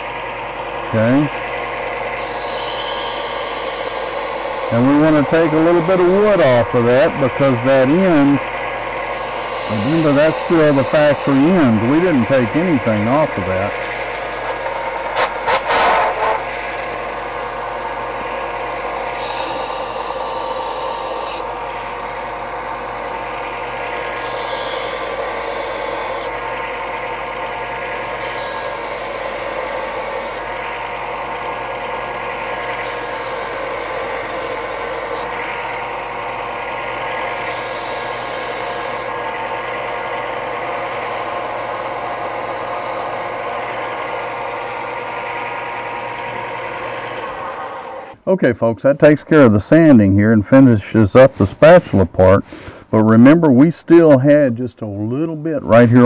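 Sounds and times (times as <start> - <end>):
sander motor hum: 0.0 - 48.2
wood rasping on sanding belt: 2.2 - 8.1, 9.0 - 16.9, 19.1 - 22.0, 23.9 - 26.5, 27.9 - 30.9, 32.7 - 36.3, 37.1 - 39.2.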